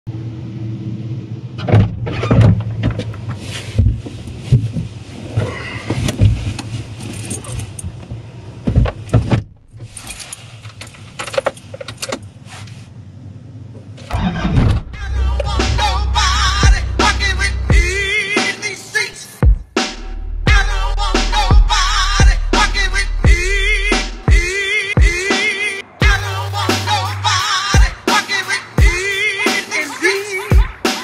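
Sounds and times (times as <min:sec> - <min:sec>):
truck engine drone: 0:00.1 - 0:04.5, 0:13.0 - 0:31.0
rattles and knocks in cab: 0:01.6 - 0:09.8.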